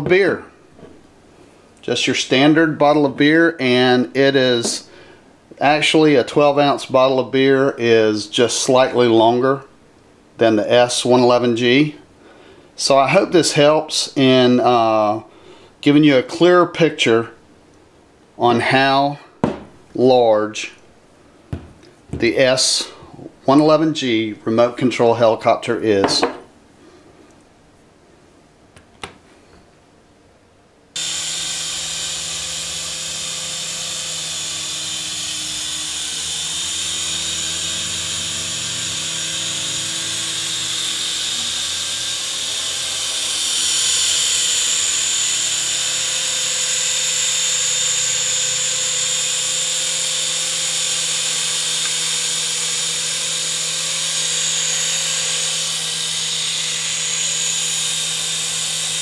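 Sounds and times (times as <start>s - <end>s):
rotors whirring: 31.0s - 59.0s
toy helicopter motor whine: 31.0s - 59.0s.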